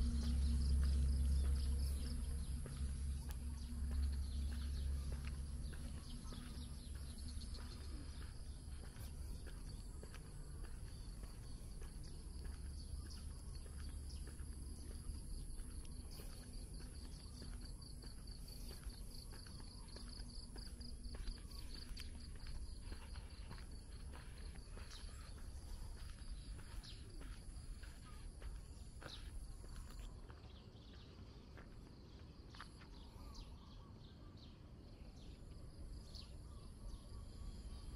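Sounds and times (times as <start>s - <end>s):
footsteps on concrete path: 0.0s - 37.9s.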